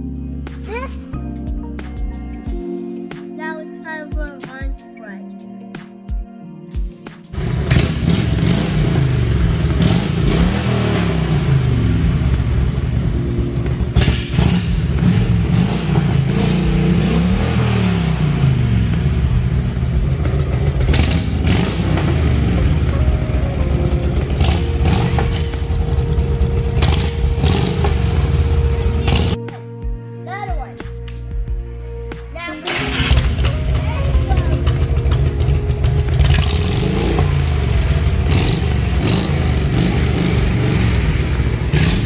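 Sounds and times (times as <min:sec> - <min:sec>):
motorcycle engine revving: 0:07.4 - 0:29.4, 0:32.7 - 0:42.0.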